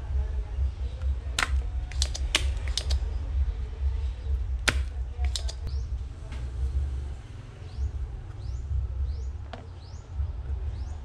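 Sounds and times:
steady low hum: 0.0s - 11.0s
sharp clicks and taps: 1.0s - 3.0s, 4.6s - 5.7s.

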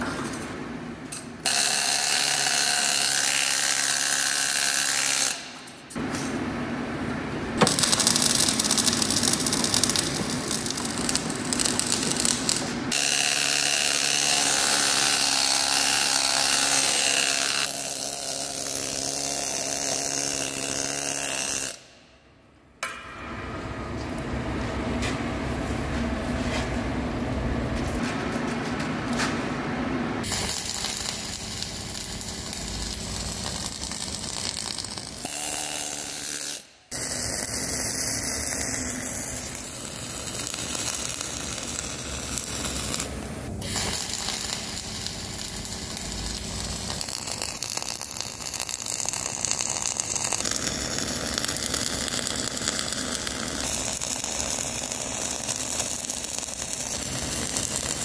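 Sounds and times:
welding arc crackling and hissing: 7.6s - 21.8s, 30.2s - 58.0s.

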